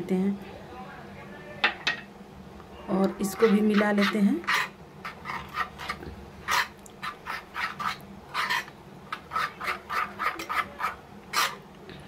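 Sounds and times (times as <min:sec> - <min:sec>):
metal spoon scraping saucepan: 0:03.0 - 0:11.6.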